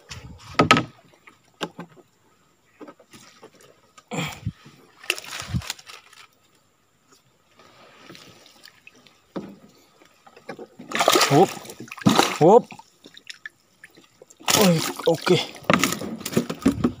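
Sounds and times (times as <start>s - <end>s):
water splashing around boat: 7.6s - 17.0s.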